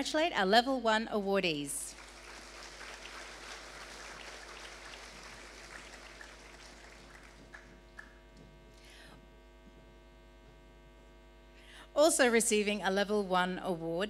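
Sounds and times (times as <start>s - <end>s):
electrical mains hum: 0.0s - 14.0s
audience applause: 1.9s - 8.1s.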